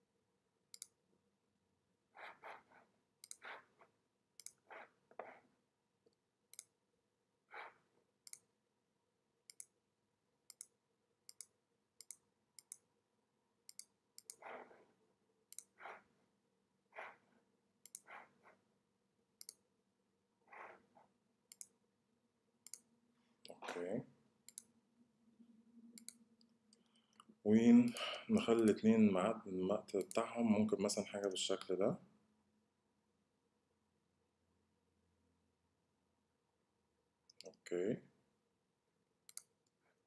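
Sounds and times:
computer mouse clicking: 0:00.7 - 0:01.0, 0:02.2 - 0:03.7, 0:04.4 - 0:05.4, 0:06.1 - 0:06.8, 0:07.6 - 0:08.5, 0:09.5 - 0:09.8, 0:10.5 - 0:12.9, 0:13.7 - 0:14.7, 0:15.5 - 0:16.0, 0:17.8 - 0:18.3, 0:19.4 - 0:19.6, 0:21.5 - 0:21.8, 0:22.6 - 0:22.9, 0:24.4 - 0:24.7, 0:25.9 - 0:28.8, 0:29.8 - 0:30.3, 0:39.3 - 0:39.8.

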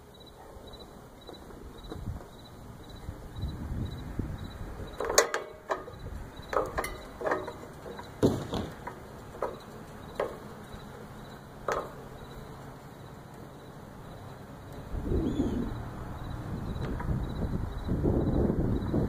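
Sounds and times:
metal mast clicks and knocks: 0:04.9 - 0:12.5.

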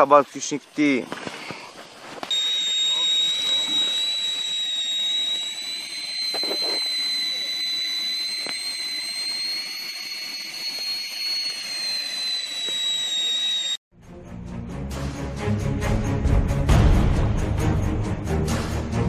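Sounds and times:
kettle whistling: 0:00.0 - 0:13.8
steam hiss: 0:00.0 - 0:13.8.

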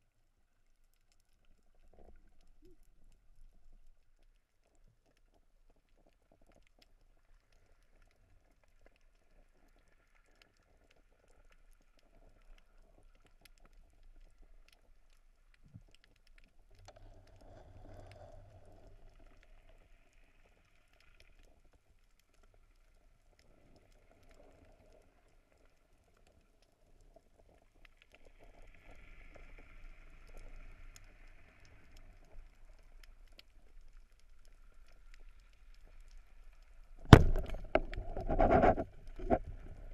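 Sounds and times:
underwater clicks and crackles: 0:00.0 - 0:39.9
low underwater rumble: 0:33.9 - 0:39.9.

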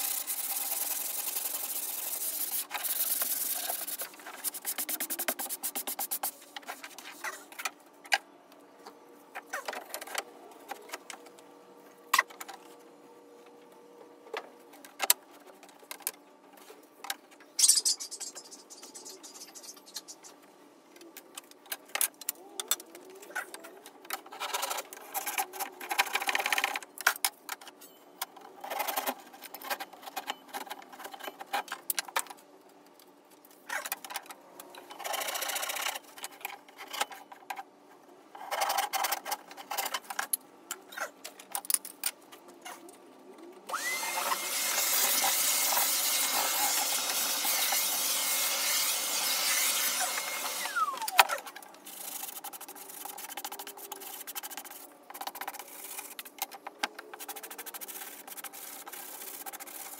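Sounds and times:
power tool motor whine: 0:43.7 - 0:47.7, 0:48.9 - 0:51.1.

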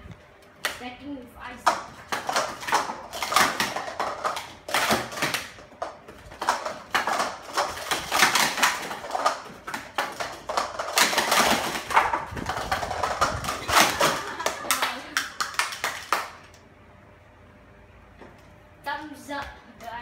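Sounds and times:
plastic cups clattering: 0:01.7 - 0:16.5.

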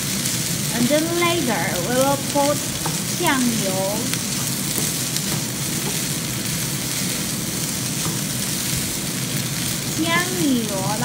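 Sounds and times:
rice sizzling in frying pan: 0:00.0 - 0:11.0
spatula stirring in pan: 0:02.0 - 0:10.2.

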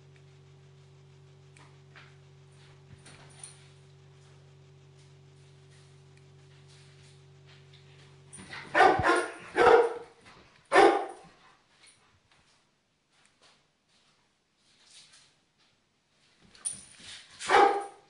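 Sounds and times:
large dog barking: 0:08.7 - 0:10.1, 0:10.7 - 0:11.2, 0:17.5 - 0:18.0.

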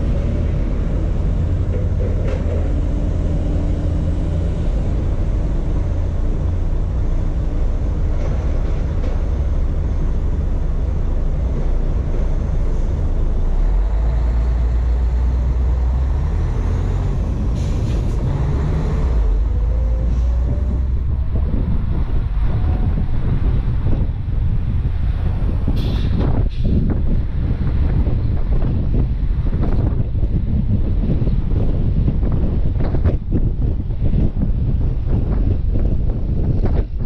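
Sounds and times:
truck diesel engine rumbling: 0:00.0 - 0:37.0
short air hiss: 0:25.8 - 0:26.7.

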